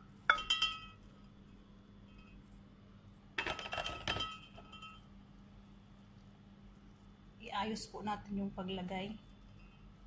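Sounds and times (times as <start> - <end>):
pan clinking against glass dish: 0.3 - 1.0.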